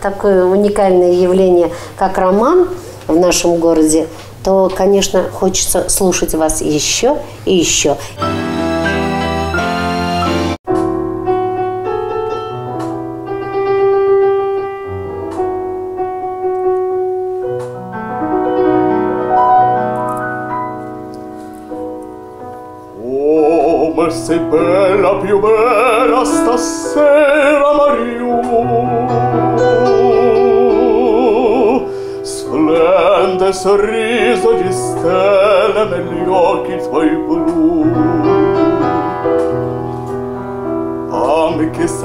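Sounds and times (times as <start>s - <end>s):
piano playing: 7.7s - 42.0s
man singing operatically: 23.0s - 39.2s, 41.1s - 42.0s.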